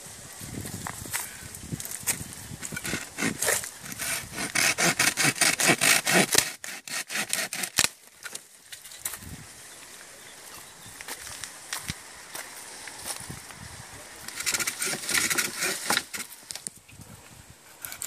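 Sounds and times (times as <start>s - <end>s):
hand saw cutting branch: 2.6s - 8.0s, 14.2s - 16.5s.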